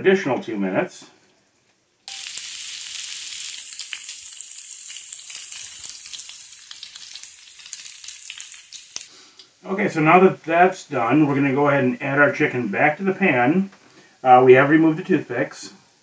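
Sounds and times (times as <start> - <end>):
food sizzling in a skillet: 2.1 - 9.1.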